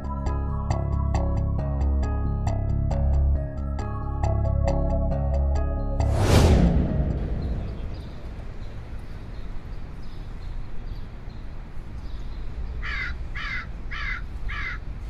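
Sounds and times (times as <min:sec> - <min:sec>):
low outdoor rumble: 0:00.0 - 0:10.0
crow cawing: 0:12.8 - 0:14.8.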